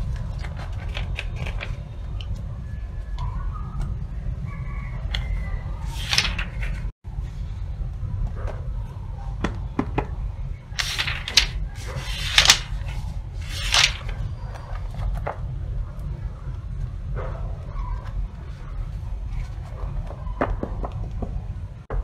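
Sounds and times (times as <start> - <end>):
book pages turning: 0.0 - 1.8, 5.8 - 6.9, 10.7 - 15.4.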